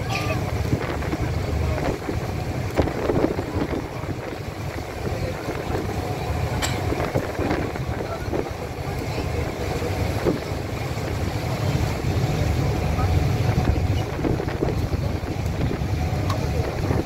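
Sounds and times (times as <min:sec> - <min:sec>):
wind on microphone: 0:00.0 - 0:12.4, 0:13.0 - 0:17.0
boat engine rumbling: 0:00.0 - 0:17.0.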